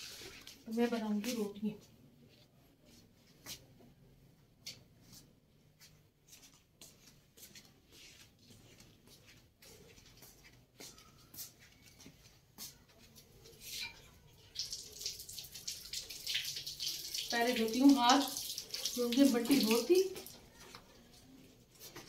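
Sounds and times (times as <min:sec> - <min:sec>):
footsteps in sandals on hard floor: 0:00.2 - 0:13.8, 0:21.6 - 0:22.0.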